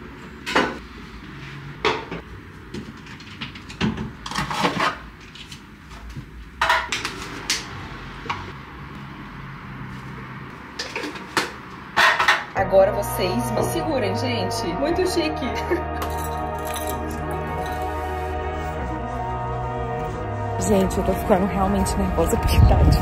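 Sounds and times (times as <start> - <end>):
containers knocking and clinking: 10.7 - 12.5.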